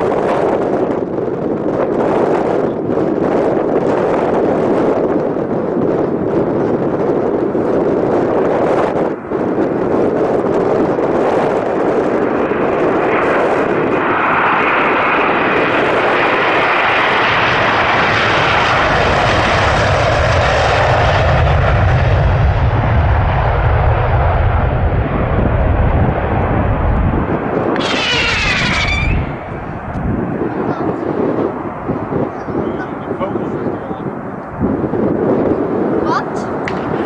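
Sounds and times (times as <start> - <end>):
jet engines passing with whine: 0.0 - 37.0.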